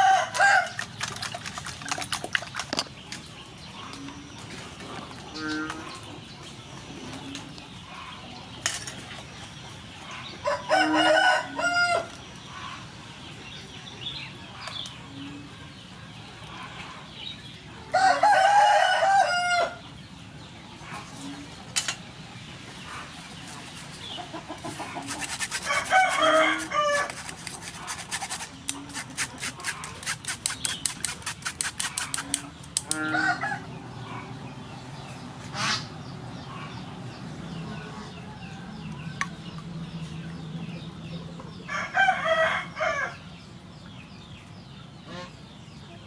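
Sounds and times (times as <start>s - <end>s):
rooster crowing: 10.5s - 12.1s, 17.9s - 19.8s, 25.7s - 27.1s, 33.0s - 33.7s.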